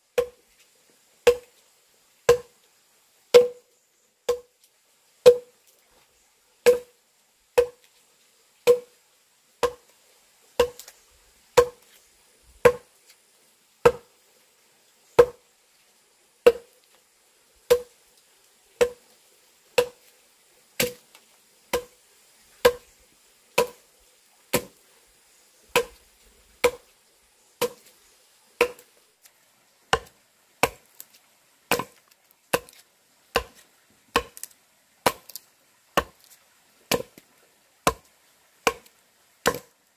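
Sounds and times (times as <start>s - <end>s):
axe chopping into log: 1.3s - 1.5s, 2.3s - 2.5s, 3.3s - 3.6s, 5.3s - 5.5s, 6.6s - 6.9s, 7.6s - 7.8s, 9.6s - 9.8s, 10.6s - 10.9s, 11.6s - 11.8s, 12.6s - 12.8s, 13.8s - 14.1s, 15.2s - 15.4s, 16.5s - 16.7s, 19.8s - 20.0s, 20.8s - 21.0s, 21.7s - 21.9s, 22.6s - 22.8s, 23.6s - 23.8s, 24.5s - 24.8s, 25.7s - 26.0s, 26.6s - 26.8s, 27.6s - 27.9s, 28.6s - 28.9s, 29.9s - 30.9s, 31.7s - 32.8s, 33.4s - 35.4s, 36.0s - 36.3s, 36.9s - 37.2s, 37.9s - 39.7s.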